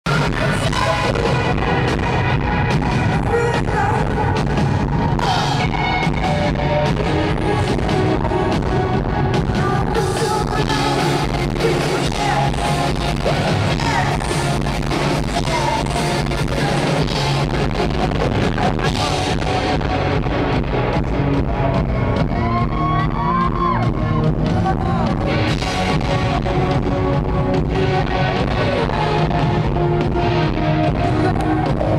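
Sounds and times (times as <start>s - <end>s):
rock band playing: 0.0s - 31.9s
woman singing: 0.1s - 17.8s, 27.6s - 31.9s.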